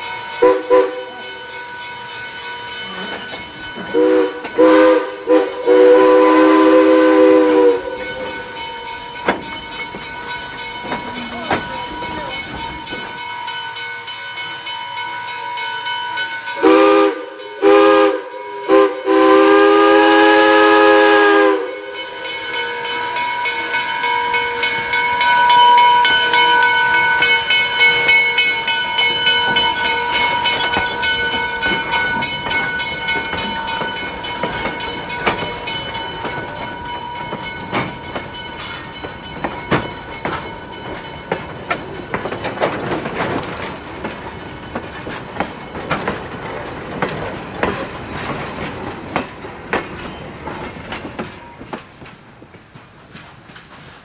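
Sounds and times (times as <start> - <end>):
train rolling past: 0.0 - 54.0
steam hissing: 0.1 - 15.3, 16.6 - 25.1
train whistle blasts: 0.4 - 1.2, 3.9 - 8.5, 16.6 - 22.2.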